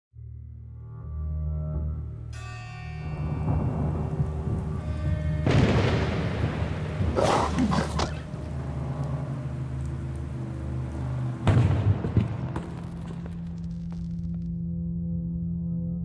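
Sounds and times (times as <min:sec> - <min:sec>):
low held music notes: 0:00.6 - 0:11.7
rain: 0:02.8 - 0:13.4
thunder rumble and crack: 0:03.2 - 0:14.0.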